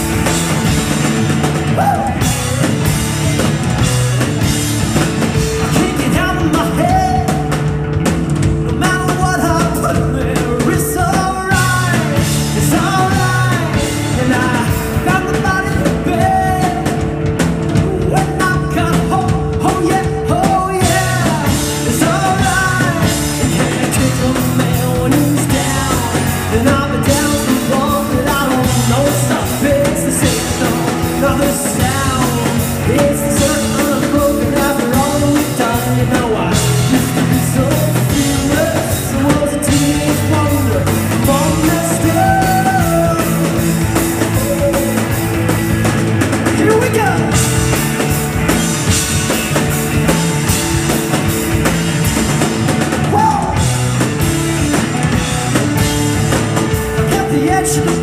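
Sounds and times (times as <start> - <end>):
rock band playing: 0.0 - 58.0
man singing: 1.6 - 3.9, 5.2 - 7.8, 8.6 - 17.1, 17.7 - 45.5, 46.4 - 47.7, 53.0 - 54.0, 56.9 - 58.0.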